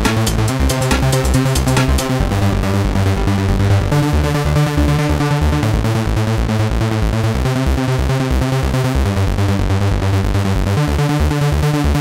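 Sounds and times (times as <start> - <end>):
pulsing bass beat: 0.0 - 12.0
synthesizer chords: 0.0 - 12.0.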